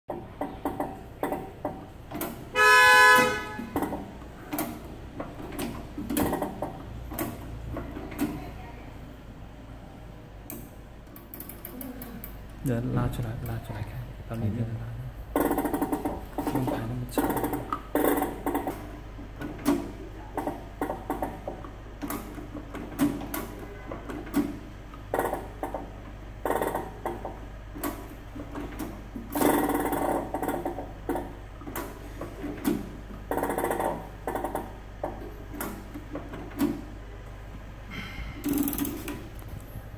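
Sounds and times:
embosser wheel clicks and knocks: 0:00.1 - 0:02.6, 0:03.2 - 0:08.5, 0:15.3 - 0:37.4
vehicle horn honk: 0:02.5 - 0:03.8.

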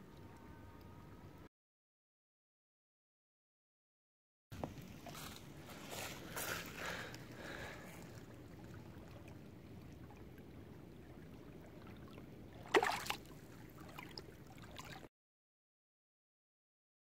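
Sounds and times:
shallow water lapping: 0:04.6 - 0:15.1
fish splash: 0:12.0 - 0:15.1.

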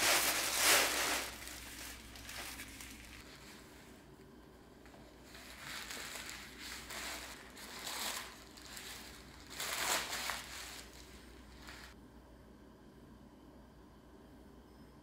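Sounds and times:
tissue paper crinkling: 0:00.0 - 0:03.8, 0:04.8 - 0:12.0.

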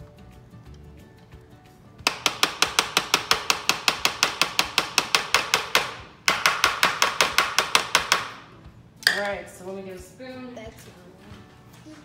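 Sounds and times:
plastic cup knocking on metal tray: 0:02.1 - 0:08.4.

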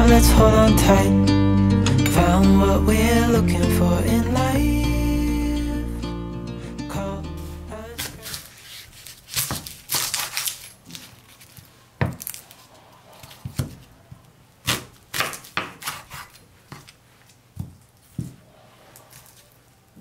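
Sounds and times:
knife crunching through onion: 0:07.9 - 0:17.4.

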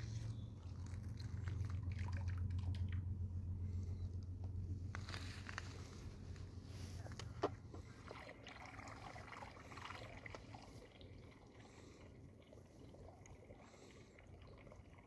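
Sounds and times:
lake water lapping and trickling: 0:00.0 - 0:04.3, 0:04.9 - 0:15.0
low rumble: 0:00.0 - 0:08.1.

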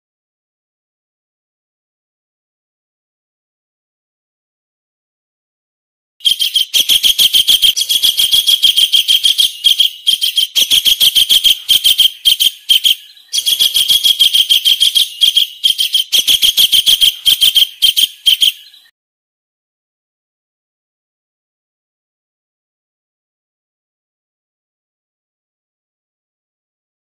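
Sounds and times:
kingfisher call: 0:06.2 - 0:18.9.

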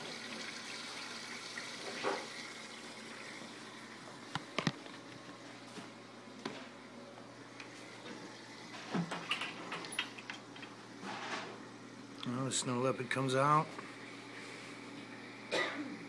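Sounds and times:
aquarium water splashing: 0:00.0 - 0:05.7.

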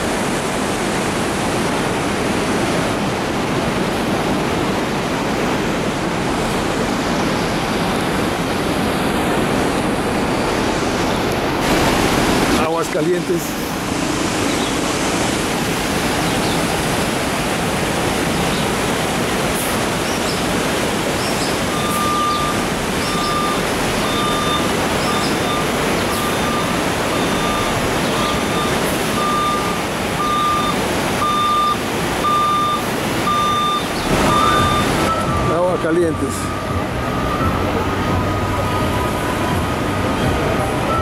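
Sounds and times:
river rushing over rocks: 0:00.0 - 0:41.0
reversing alarm beeping: 0:21.7 - 0:41.0.

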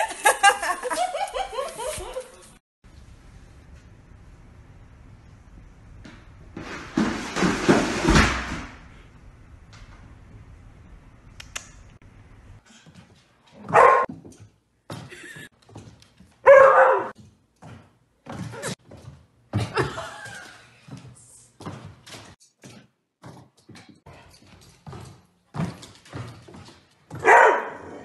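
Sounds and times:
dog barking: 0:13.6 - 0:14.1, 0:16.4 - 0:17.2, 0:27.2 - 0:28.0.

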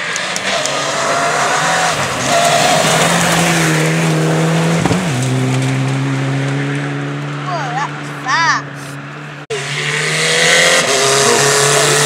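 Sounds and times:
rally car engine running hard: 0:02.9 - 0:12.0.

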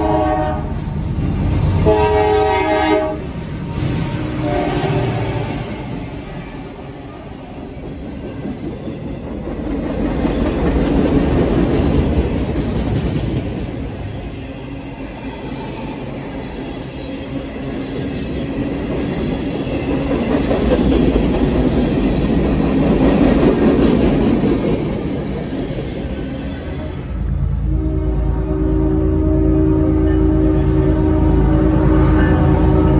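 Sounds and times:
freight train wheels clattering: 0:03.2 - 0:14.6, 0:16.4 - 0:26.8.

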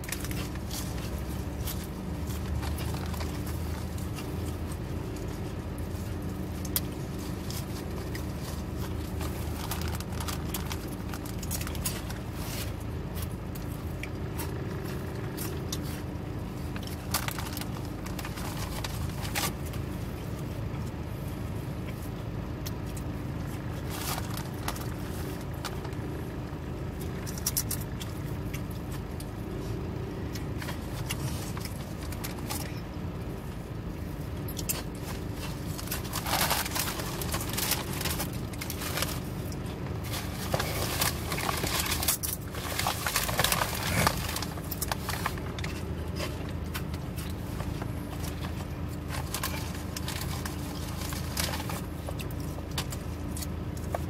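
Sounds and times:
plastic bag crinkling: 0:00.0 - 0:20.4, 0:23.7 - 0:26.0, 0:34.5 - 0:54.0
low car cabin hum: 0:00.0 - 0:54.0.

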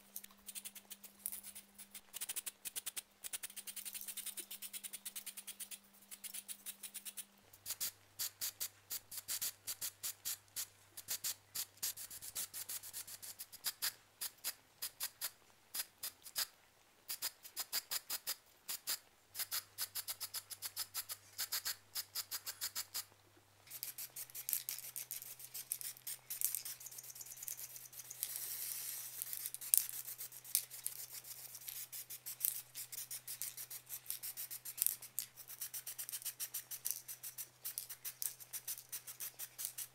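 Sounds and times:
spray can rattling: 0:23.7 - 0:39.9.

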